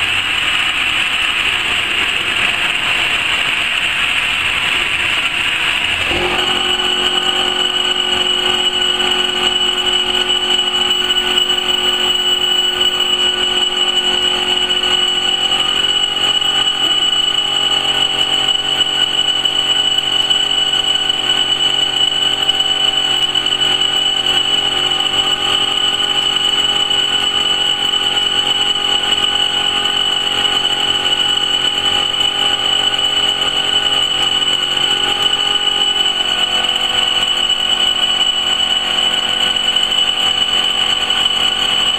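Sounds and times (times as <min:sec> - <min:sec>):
machine high whine: 0:00.0 - 0:41.9
motor hum: 0:05.7 - 0:36.8.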